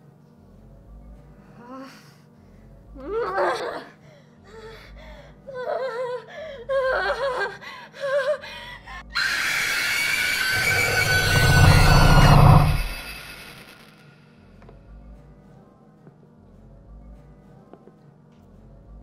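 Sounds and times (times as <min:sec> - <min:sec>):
woman crying out: 0:05.5 - 0:09.2
horror film score drone: 0:09.0 - 0:14.5
deep rumble: 0:10.5 - 0:13.6.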